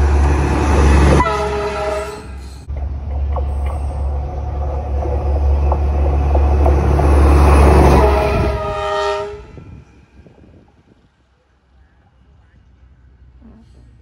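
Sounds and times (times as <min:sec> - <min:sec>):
locomotive engine rumble: 0:00.0 - 0:14.0
locomotive horn blast: 0:00.8 - 0:02.4, 0:07.5 - 0:09.8.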